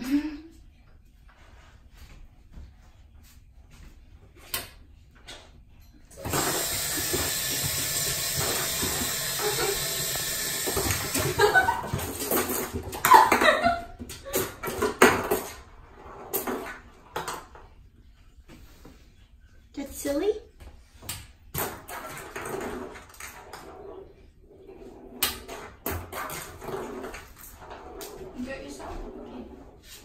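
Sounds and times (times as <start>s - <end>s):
water rushing in plumbing: 6.2s - 12.3s.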